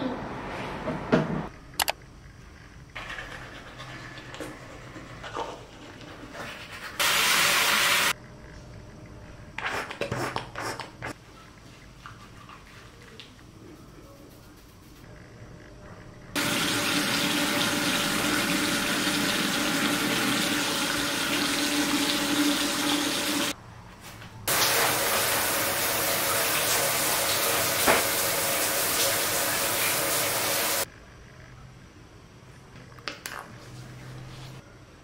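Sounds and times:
tap running into sink: 27.3 - 28.2.

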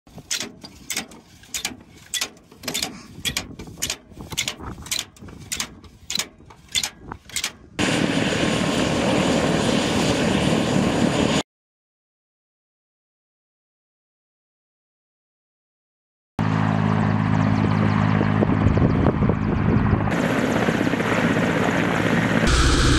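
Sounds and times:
metal clicks and clanks: 0.1 - 7.7
helicopter in flight: 0.1 - 11.4, 16.4 - 22.9.

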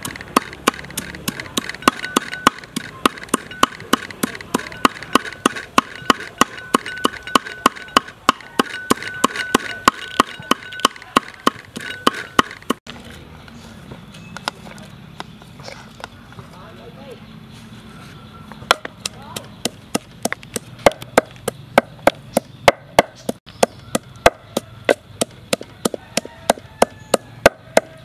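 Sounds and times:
knife chopping on wooden board: 0.0 - 12.8.

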